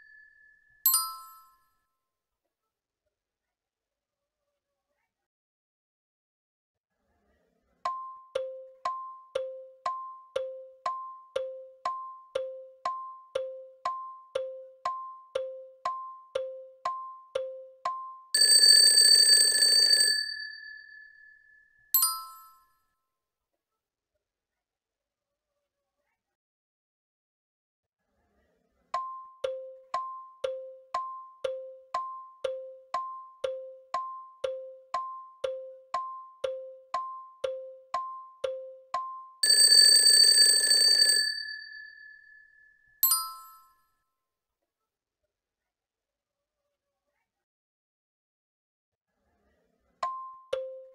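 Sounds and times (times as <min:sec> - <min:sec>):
alarm bell ringing: 0:00.0 - 0:01.5, 0:18.3 - 0:22.6, 0:39.3 - 0:43.7
bright chime: 0:00.0 - 0:01.6
two-tone tick-tock: 0:07.9 - 0:18.8, 0:29.0 - 0:40.5, 0:50.0 - 0:50.9.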